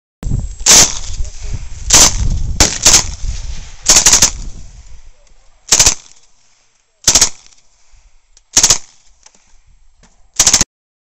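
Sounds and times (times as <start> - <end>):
submachine gun firing bursts: 0.6 - 1.2, 1.9 - 3.2, 3.8 - 4.6, 5.7 - 6.2, 7.0 - 7.6, 8.5 - 9.1, 10.4 - 10.7.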